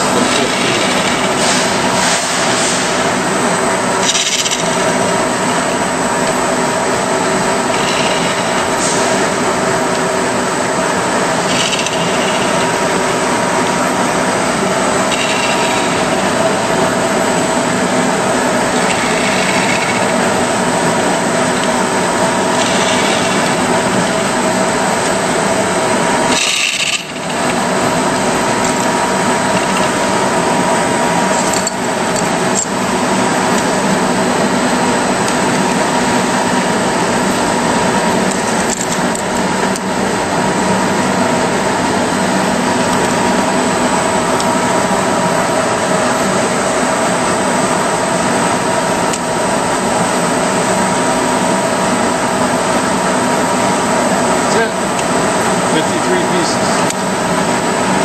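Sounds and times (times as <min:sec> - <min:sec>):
grinder grinding hiss: 0:00.0 - 0:03.2, 0:11.2 - 0:31.6
machine hum: 0:00.0 - 0:58.0.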